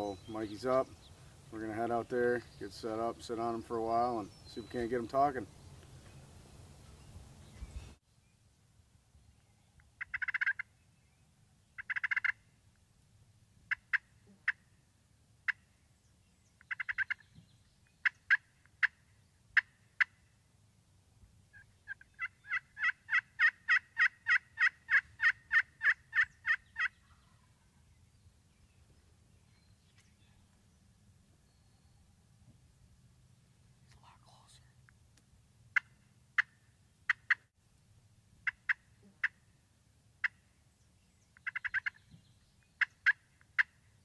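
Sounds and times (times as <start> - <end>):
turkey call yelps: 10.0 - 10.7, 11.8 - 12.4, 16.7 - 17.2, 21.5 - 27.4, 41.4 - 42.0
turkey clucks: 11.8 - 12.4, 21.9 - 27.0, 41.4 - 42.0.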